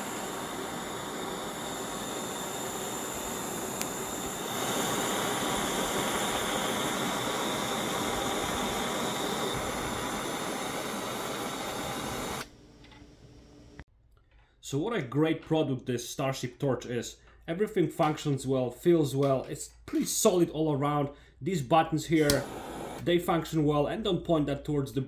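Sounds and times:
jet torch flame hissing: 0:00.0 - 0:13.8, 0:22.1 - 0:23.4.

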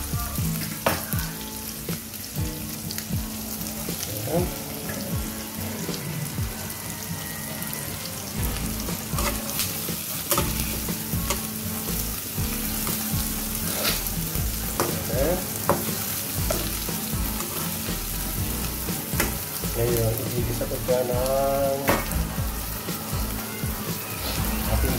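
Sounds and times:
vegetables sizzling in a wok: 0:00.0 - 0:24.9
metal spatula scraping a pan: 0:08.5 - 0:19.6.

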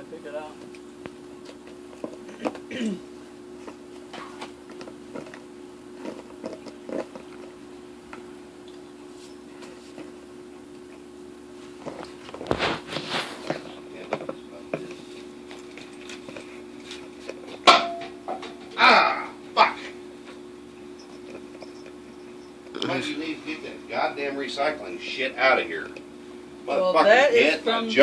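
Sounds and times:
dog licking and chewing: 0:04.7 - 0:11.1.

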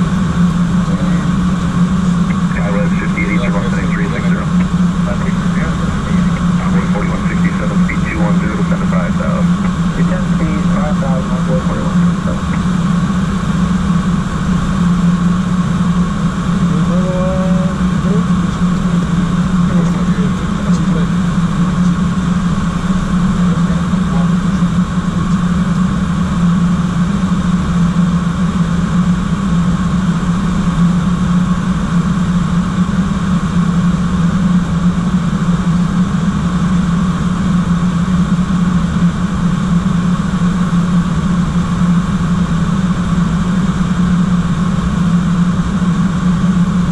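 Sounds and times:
steady tone: 0:00.0 - 0:27.7
low cockpit hum: 0:00.0 - 0:46.9.

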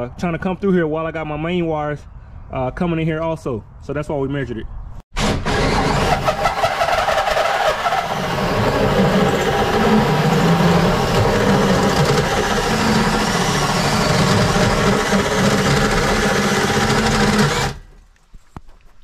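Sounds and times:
drill cutting through sheet steel: 0:05.2 - 0:17.9.

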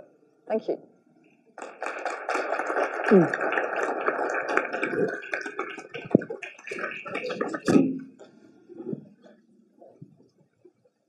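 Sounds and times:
audience applauding: 0:01.6 - 0:07.9.

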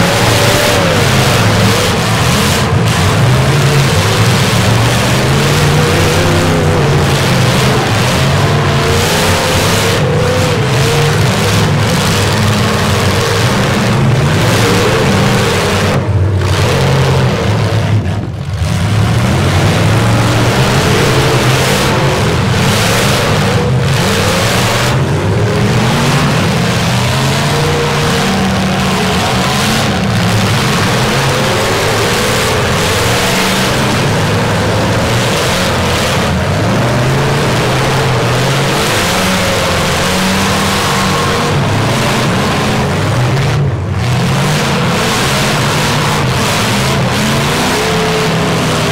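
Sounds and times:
truck engines revving: 0:00.0 - 0:48.9.

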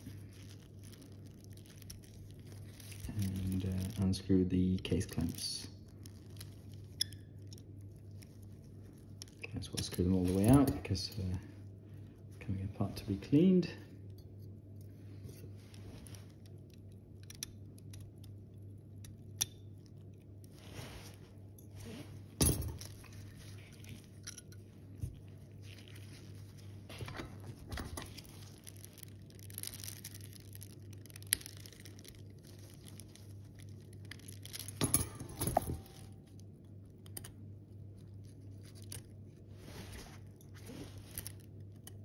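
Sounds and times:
low steady hum: 0:00.0 - 0:42.0
tools clicking on metal parts: 0:24.2 - 0:24.6, 0:34.4 - 0:36.1.

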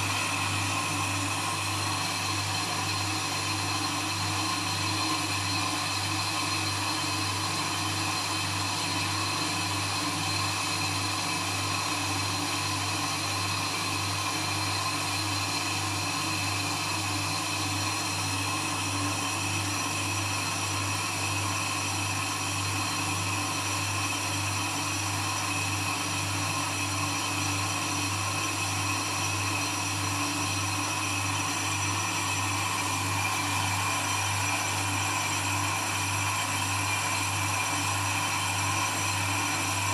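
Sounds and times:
thin high whine: 0:27.6 - 0:39.9.

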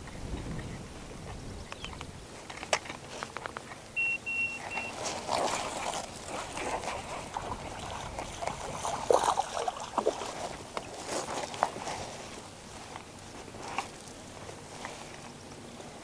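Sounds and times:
fishing gear clicks and knocks: 0:01.8 - 0:03.8, 0:04.6 - 0:09.6
short high electronic beeps: 0:04.0 - 0:05.0.

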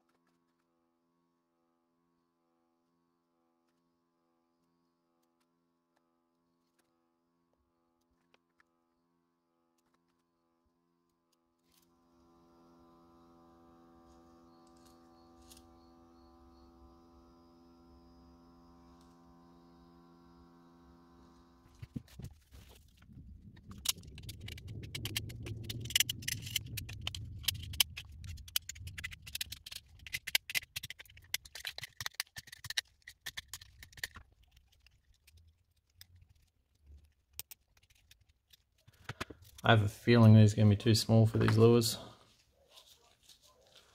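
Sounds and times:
faint steady hum: 0:11.7 - 0:43.9.

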